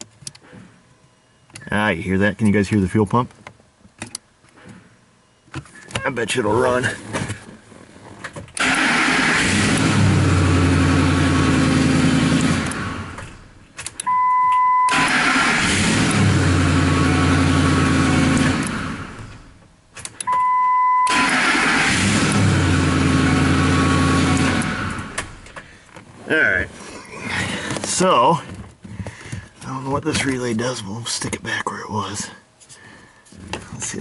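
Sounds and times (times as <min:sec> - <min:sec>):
truck engine starting and running: 0:08.5 - 0:28.5.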